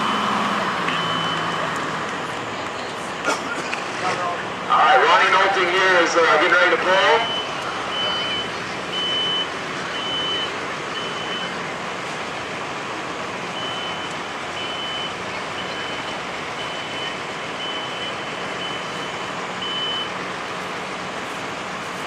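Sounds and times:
vehicle reversing beeper: 0.0s - 1.9s, 6.2s - 11.6s, 13.5s - 20.2s
engine running: 0.0s - 22.0s.

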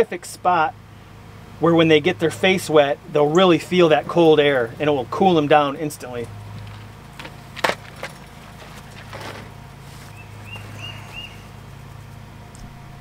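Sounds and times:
computer fan humming: 0.0s - 13.0s.

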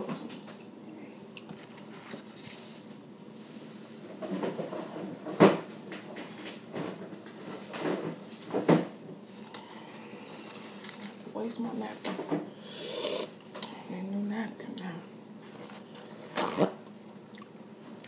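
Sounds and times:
rustling and handling noise: 1.5s - 12.4s, 15.4s - 17.2s.

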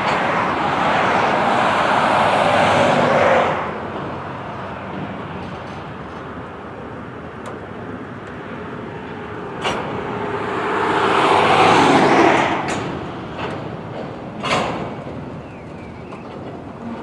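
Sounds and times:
steel wheels rumbling on rail: 0.0s - 17.0s
sharp rail clacks: 12.1s - 17.0s.

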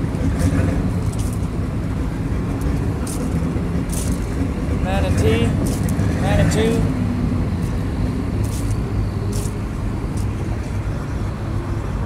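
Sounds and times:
low outdoor rumble: 0.0s - 12.0s
footsteps on gravel: 1.0s - 1.5s, 2.6s - 4.3s, 5.0s - 6.9s, 8.4s - 10.7s.

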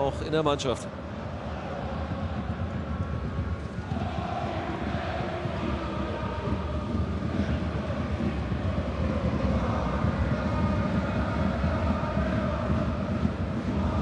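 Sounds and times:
fans chanting: 0.9s - 14.0s
crowd roar: 3.8s - 14.0s.

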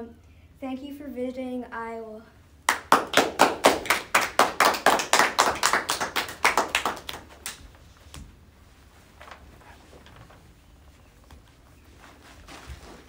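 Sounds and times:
hands clapping: 2.7s - 8.2s.

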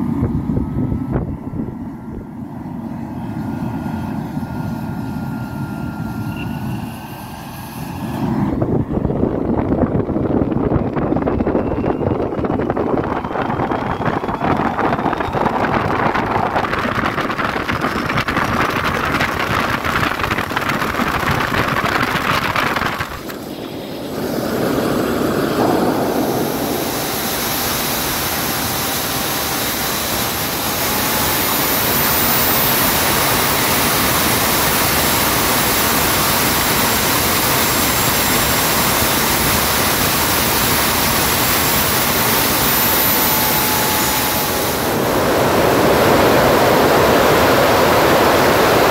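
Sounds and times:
high whine: 0.0s - 48.9s
jet engine rushing: 0.0s - 48.9s.

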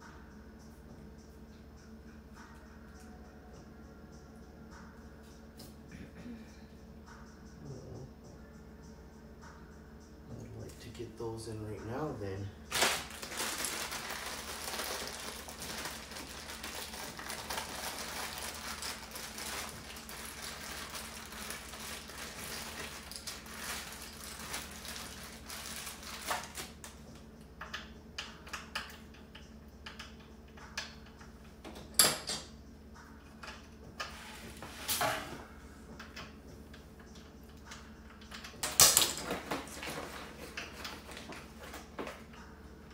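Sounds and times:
packaging rustling: 12.7s - 27.0s
metal parts clicking and clinking: 37.6s - 41.0s.

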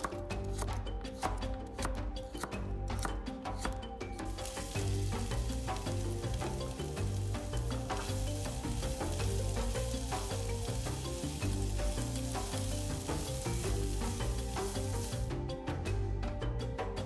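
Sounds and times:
background music: 0.0s - 17.0s
food sizzling in a frying pan: 4.4s - 15.3s.

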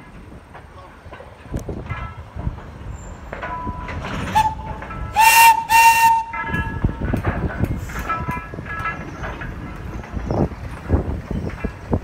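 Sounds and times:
locomotive whistle blasts: 4.3s - 6.8s.

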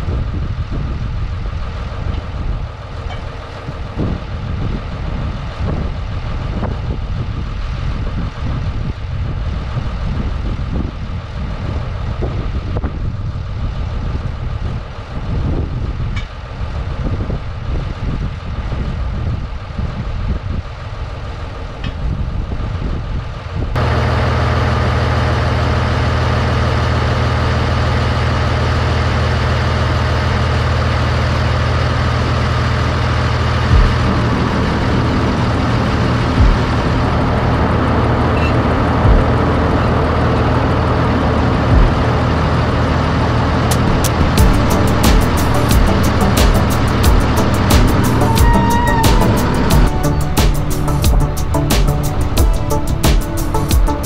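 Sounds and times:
gusty low rumbling: 0.0s - 54.0s
diesel engine idling: 23.8s - 54.0s.

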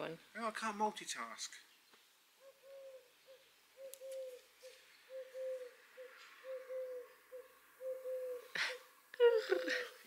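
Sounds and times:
dove cooing: 2.4s - 10.0s.

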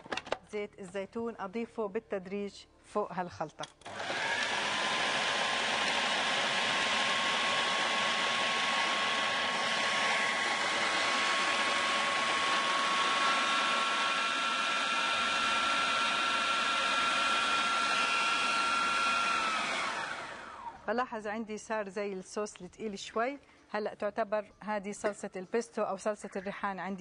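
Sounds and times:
food processor motor whirring: 3.8s - 20.8s.

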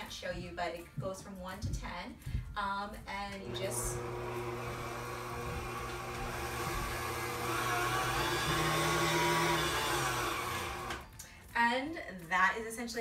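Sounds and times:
stand mixer motor humming: 3.5s - 11.0s.

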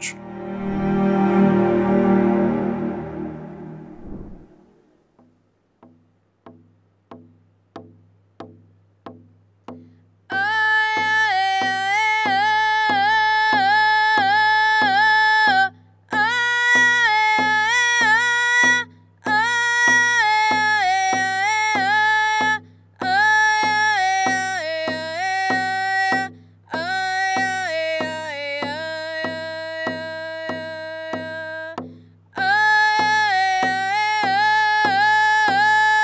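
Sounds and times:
hand drum beat: 5.2s - 36.0s
woman singing: 10.3s - 31.8s, 32.4s - 36.0s.

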